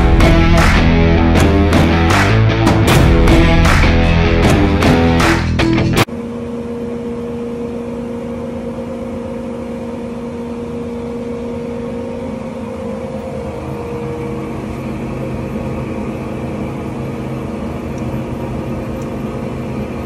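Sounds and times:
guitar rock music: 0:00.0 - 0:06.1
bandsaw motor hum: 0:00.0 - 0:20.0.

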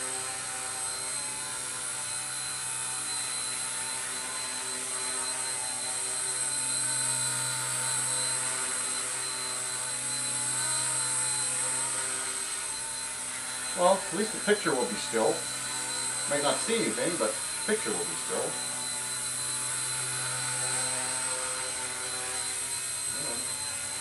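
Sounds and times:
rc helicopter rotor whine: 0:00.0 - 0:24.0.

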